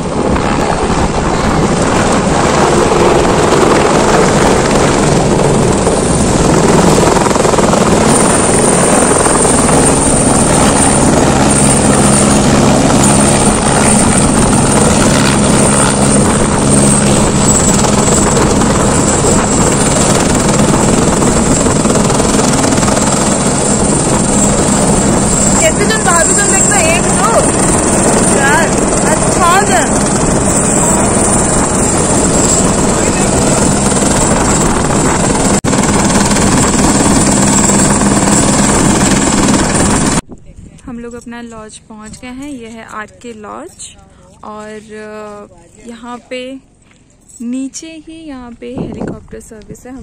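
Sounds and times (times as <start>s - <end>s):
helicopter rotor and engine: 0.0s - 50.0s.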